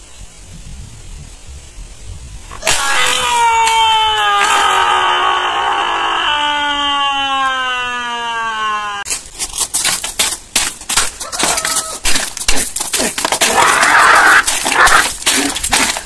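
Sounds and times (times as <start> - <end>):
falling pitched tone: 2.6 - 9.1.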